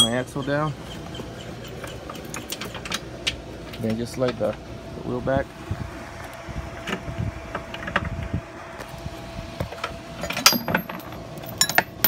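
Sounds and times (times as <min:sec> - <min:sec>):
metal parts knocking and clinking: 0:00.0 - 0:00.3, 0:10.2 - 0:12.0.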